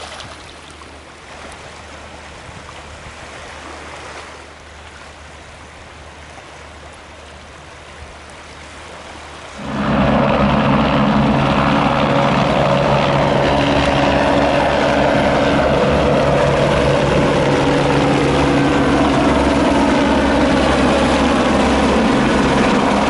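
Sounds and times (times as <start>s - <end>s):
helicopter flying past: 9.6s - 23.0s.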